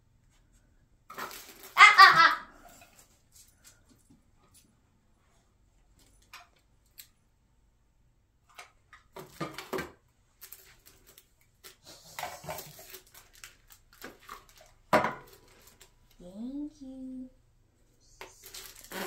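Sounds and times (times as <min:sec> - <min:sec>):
packaging rustling and crinkling: 0:01.1 - 0:01.8, 0:09.2 - 0:16.1, 0:18.3 - 0:19.0.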